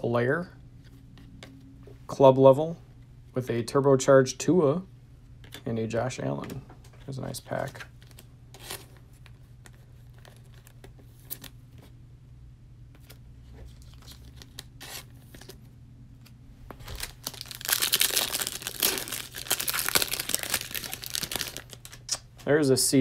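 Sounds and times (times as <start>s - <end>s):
foil pack tearing and crinkling: 16.8s - 22.1s.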